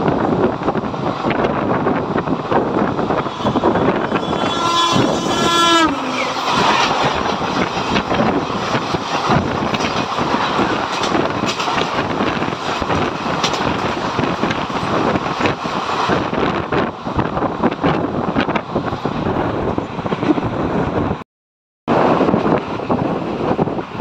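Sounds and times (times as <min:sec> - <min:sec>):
wind and track noise: 0:00.0 - 0:21.2, 0:21.9 - 0:24.0
train coaches rushing past: 0:01.0 - 0:18.0
train horn: 0:03.2 - 0:07.3.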